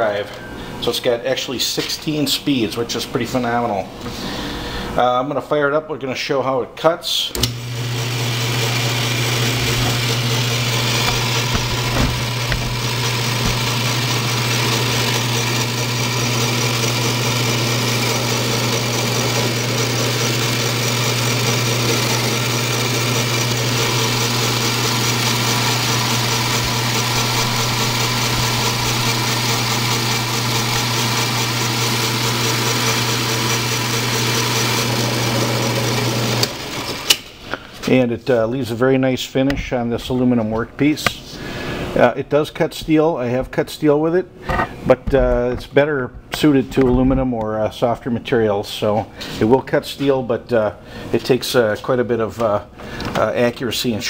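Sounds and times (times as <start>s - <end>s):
lathe motor hum and spindle whir: 7.3s - 37.2s.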